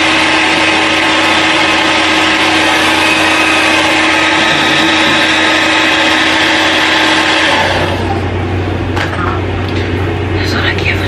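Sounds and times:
hair dryer blowing: 0.0s - 8.6s.

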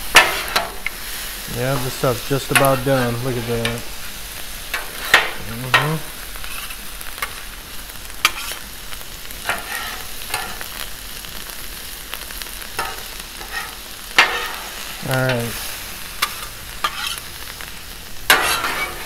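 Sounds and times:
food sizzling on griddle: 0.0s - 19.0s
metal spatulas scraping steel: 0.1s - 0.8s, 8.2s - 8.6s, 9.5s - 10.6s, 12.8s - 14.7s, 16.2s - 17.2s, 18.3s - 19.0s.

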